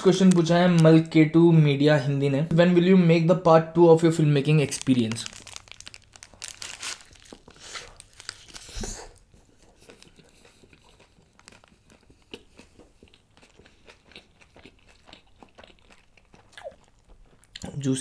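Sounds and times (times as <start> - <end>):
chewing with mouth clicks: 7.2 - 17.8.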